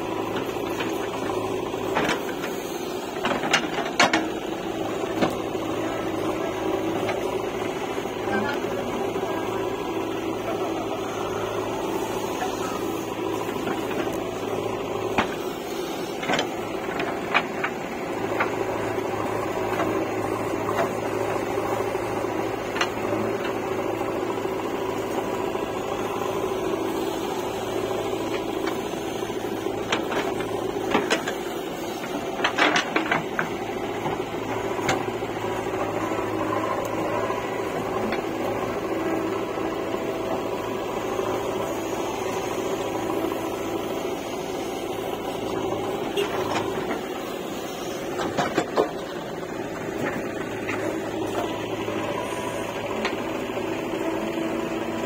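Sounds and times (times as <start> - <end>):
backhoe diesel engine running: 0.0 - 55.0.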